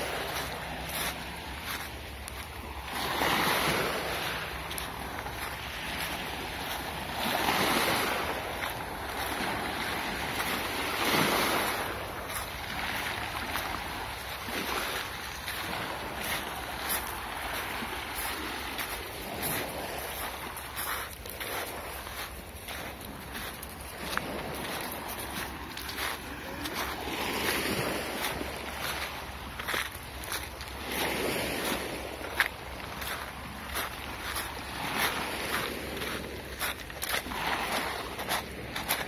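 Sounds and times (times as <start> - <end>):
waves breaking on pebble beach: 0.0 - 39.0.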